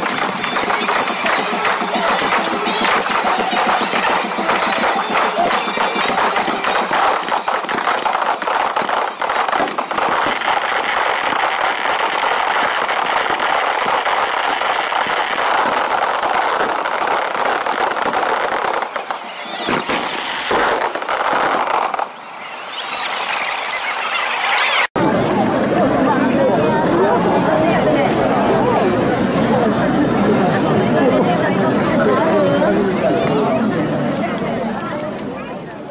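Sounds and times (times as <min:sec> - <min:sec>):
fireworks crackling rumble: 0:00.0 - 0:24.9.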